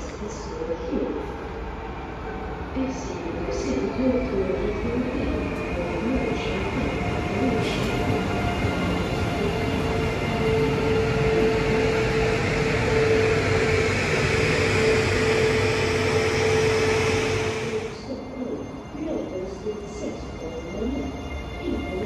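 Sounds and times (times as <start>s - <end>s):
train wheels rumbling on rails: 2.9s - 18.0s.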